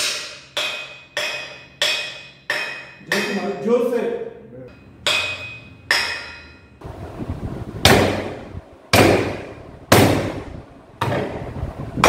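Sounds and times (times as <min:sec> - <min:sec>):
heavy metal-on-metal knocks: 0:00.0 - 0:03.6, 0:04.7 - 0:06.7, 0:07.8 - 0:11.4.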